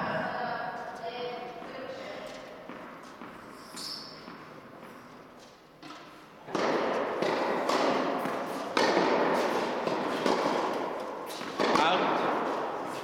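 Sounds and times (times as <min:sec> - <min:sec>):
tennis ball hitting racket and court: 0:01.6 - 0:13.0
sharp racket hit: 0:05.8 - 0:13.0.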